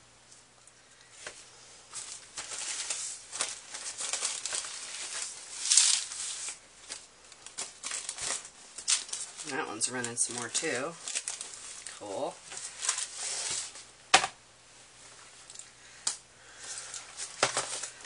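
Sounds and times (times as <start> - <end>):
paper towel rustling and crinkling: 1.2 - 13.9, 16.5 - 18.0.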